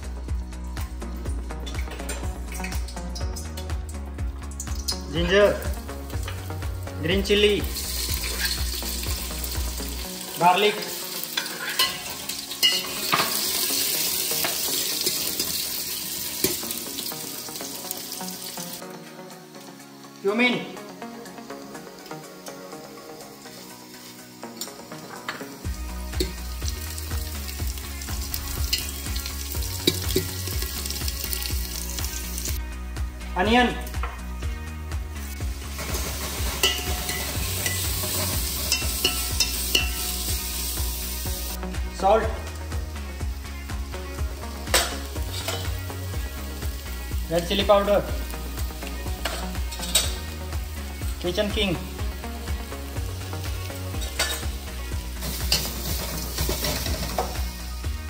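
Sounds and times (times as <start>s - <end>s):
food sizzling in hot oil: 0.0s - 32.6s, 35.0s - 58.0s
steel ladle scraping a pot: 8.2s - 8.8s, 11.3s - 13.6s, 35.8s - 40.2s, 45.3s - 45.7s.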